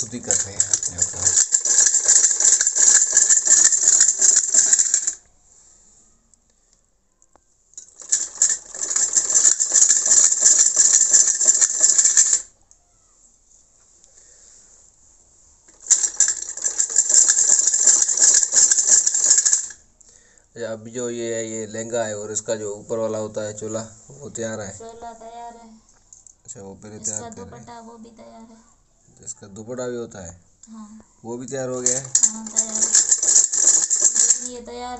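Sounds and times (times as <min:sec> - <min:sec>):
sewing machine clattering: 0:00.0 - 0:05.2, 0:07.8 - 0:12.5, 0:15.7 - 0:19.8, 0:31.7 - 0:34.6.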